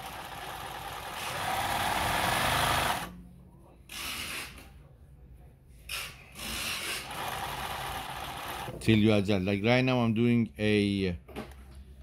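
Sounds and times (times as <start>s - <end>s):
sewing machine stitching: 0.0s - 3.1s, 6.4s - 8.8s.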